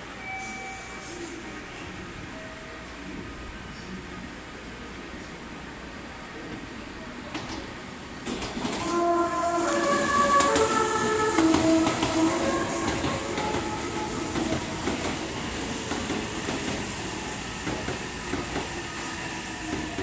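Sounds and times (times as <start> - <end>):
rail clicks: 7.3 - 20.0
train wheel noise: 7.3 - 20.0
train musical horn: 8.8 - 15.0.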